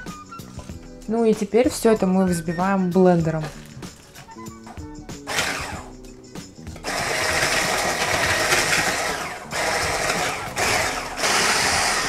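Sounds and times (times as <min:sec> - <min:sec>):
hand blender whisking: 0:05.2 - 0:05.9, 0:06.7 - 0:12.0.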